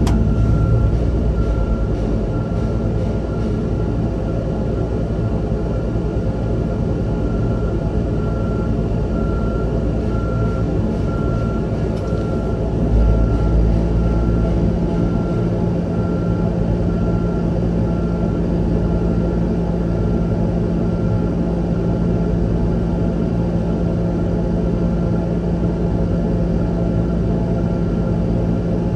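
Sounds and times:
truck diesel engine running: 0.0s - 5.7s, 7.2s - 18.2s.

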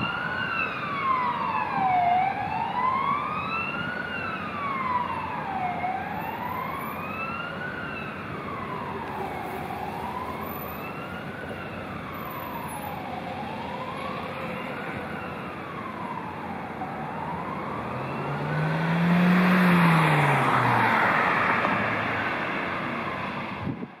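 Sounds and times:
city traffic noise: 0.0s - 24.0s
police siren wailing: 0.0s - 24.0s
vehicle passing close: 17.5s - 23.8s.

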